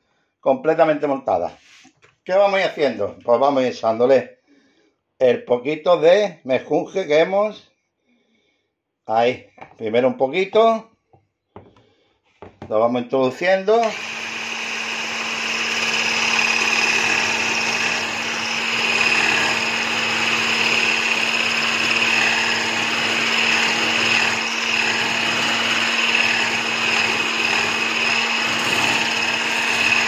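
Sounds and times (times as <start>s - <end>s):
stick blender whisking: 13.4s - 30.0s.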